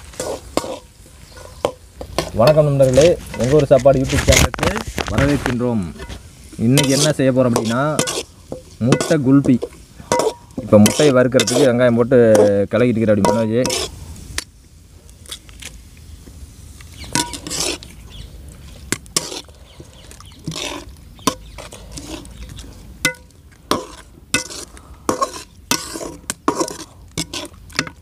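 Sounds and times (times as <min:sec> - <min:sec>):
metal spatula scraping pan: 0:00.0 - 0:14.0, 0:17.0 - 0:18.0, 0:18.8 - 0:28.0.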